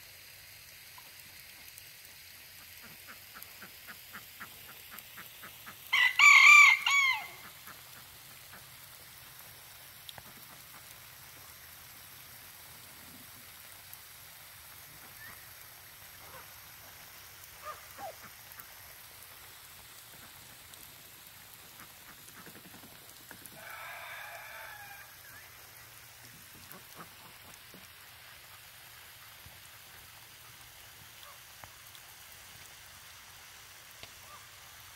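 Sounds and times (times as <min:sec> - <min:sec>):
rooster crowing: 0:05.9 - 0:07.5, 0:23.6 - 0:25.3.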